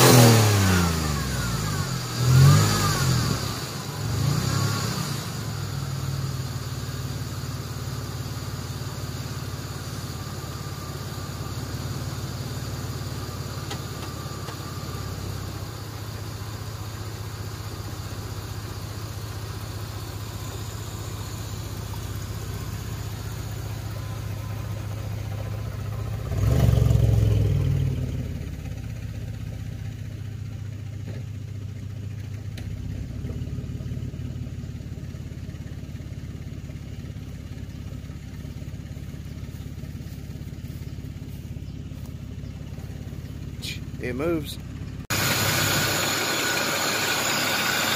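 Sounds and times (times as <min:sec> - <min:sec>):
engine revving: 0:00.0 - 0:07.2, 0:22.2 - 0:29.2, 0:45.0 - 0:47.9
car engine idling: 0:00.0 - 0:47.9.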